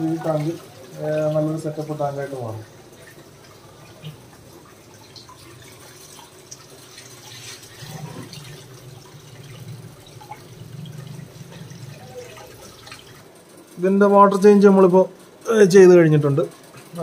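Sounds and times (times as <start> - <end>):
water drips: 0.0 - 13.4
water pouring into aquarium: 0.0 - 13.4.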